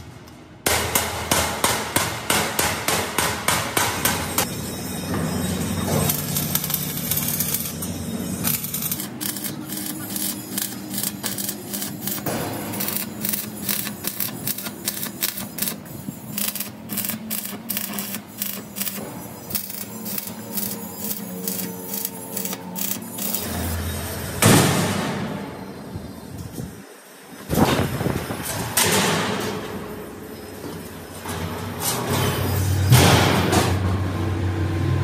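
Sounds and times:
welding arc crackling: 6.0s - 23.9s.

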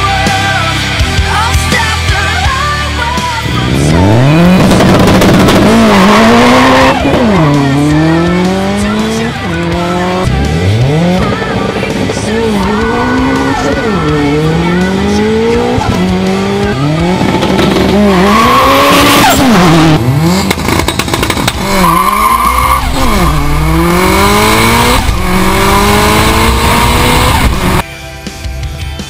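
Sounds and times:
car engine accelerating through gears: 3.3s - 27.8s
turbo rushing noise: 21.6s - 27.8s.

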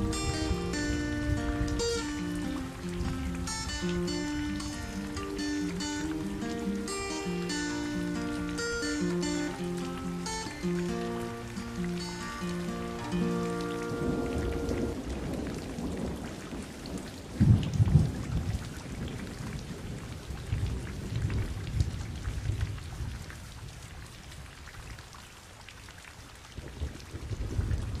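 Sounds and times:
thunder rumbling: 0.0s - 5.0s, 12.7s - 23.3s, 26.8s - 28.0s
steady rain falling: 0.0s - 28.0s.

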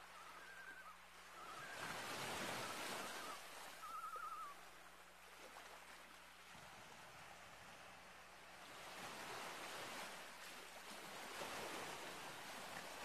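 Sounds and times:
water lapping: 0.0s - 13.0s
loons giving tremolo calls: 3.8s - 4.5s.

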